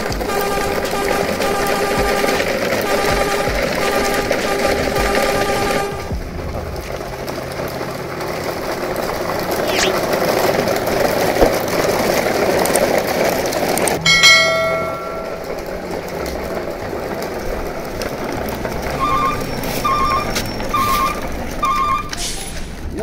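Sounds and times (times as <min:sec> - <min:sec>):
bell-like chime: 0:14.0 - 0:15.6.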